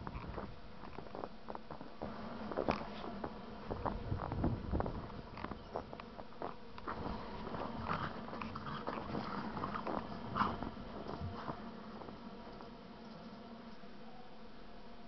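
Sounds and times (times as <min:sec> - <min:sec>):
dogs scuffling and biting: 0:04.8 - 0:12.7.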